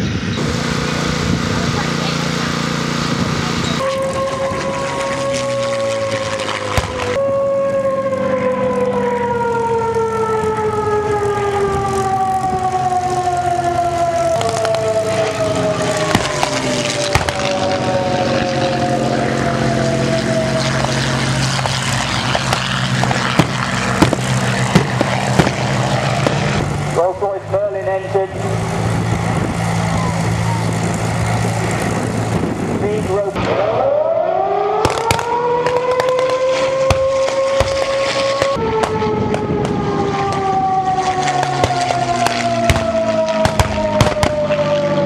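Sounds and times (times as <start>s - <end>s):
propeller plane engine droning: 0.0s - 45.0s
sharp cracks: 3.8s - 7.2s, 14.3s - 15.2s, 15.8s - 17.9s, 20.6s - 26.6s, 34.8s - 44.6s.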